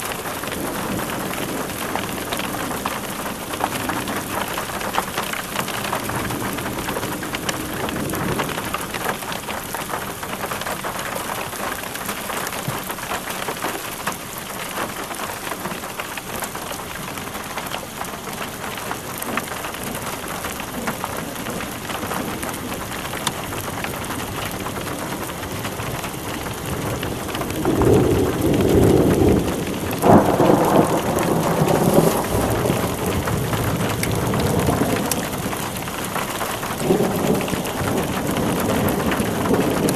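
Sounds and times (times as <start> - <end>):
steady rain: 0.0 - 39.9
thunder rumbling: 20.7 - 39.9.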